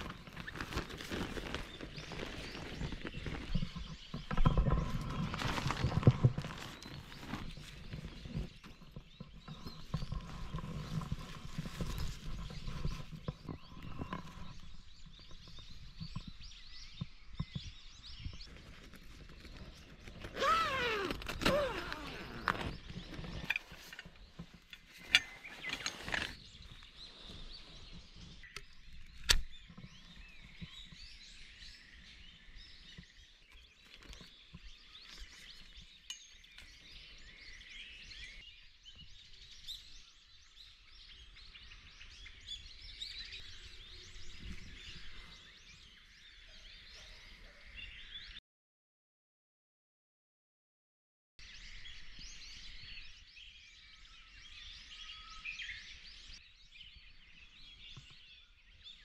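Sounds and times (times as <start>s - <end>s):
rustling and handling noise: 0.0s - 14.8s, 18.5s - 30.4s
birds chirping: 0.0s - 48.4s, 51.4s - 59.0s.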